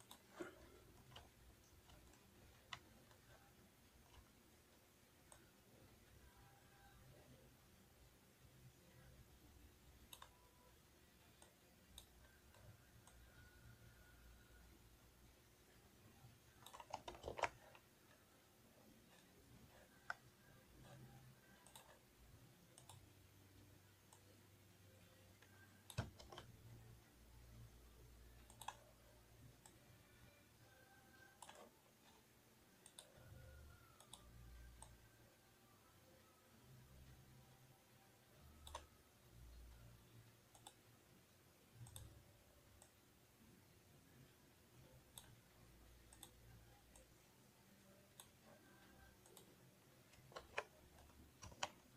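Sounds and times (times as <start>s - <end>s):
keyboard and mouse clicks: 0.0s - 4.4s, 5.1s - 5.6s, 10.0s - 14.8s, 16.3s - 18.4s, 19.0s - 23.4s, 25.3s - 27.0s, 28.3s - 29.8s, 30.6s - 35.3s, 38.4s - 40.9s, 41.8s - 43.1s, 44.8s - 51.9s
faint room hush: 0.0s - 51.9s.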